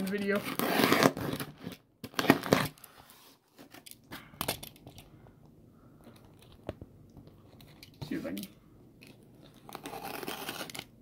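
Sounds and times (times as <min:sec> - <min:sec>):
packing tape tearing: 0:00.0 - 0:02.9, 0:09.6 - 0:10.9.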